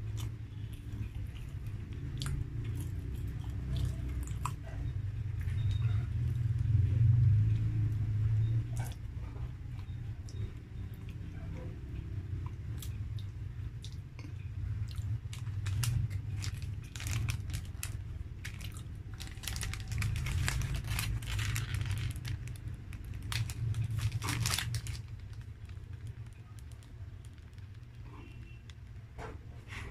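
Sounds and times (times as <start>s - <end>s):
steady low hum: 0.0s - 29.9s
plastic wrappers crinkling: 15.0s - 29.0s.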